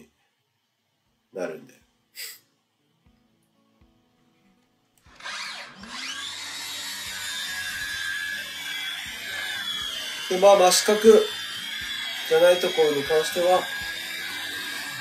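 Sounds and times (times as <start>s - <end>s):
circular saw cutting wood: 5.1s - 15.0s.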